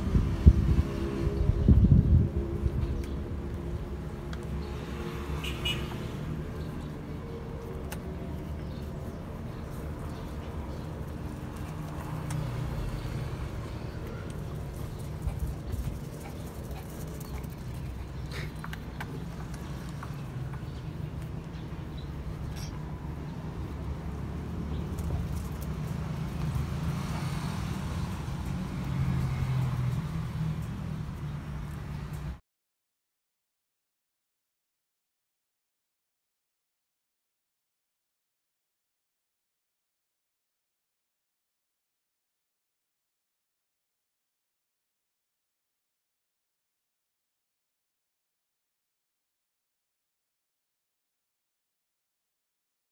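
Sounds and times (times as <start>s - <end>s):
vehicle engine rumbling: 0.0s - 32.4s.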